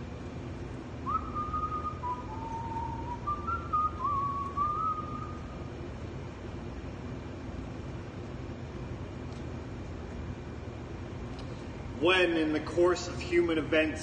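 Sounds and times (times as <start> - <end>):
exhaust hood humming: 0.0 - 14.0
person whistling a tune: 1.0 - 5.5.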